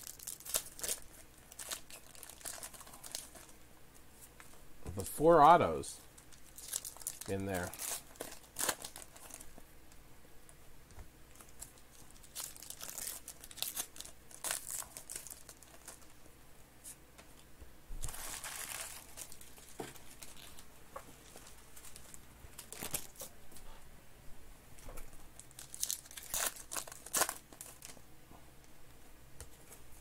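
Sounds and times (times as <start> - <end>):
foil packs crinkling and tearing: 0.0 - 3.6, 6.2 - 9.5, 11.3 - 16.1, 18.0 - 20.6, 21.2 - 23.2, 25.4 - 28.0.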